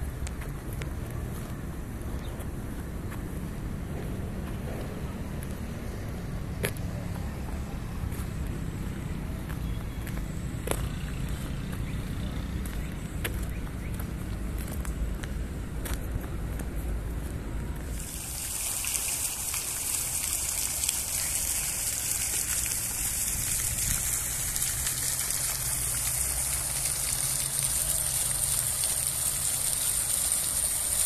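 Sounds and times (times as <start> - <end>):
rushing water hiss: 17.8 - 31.0.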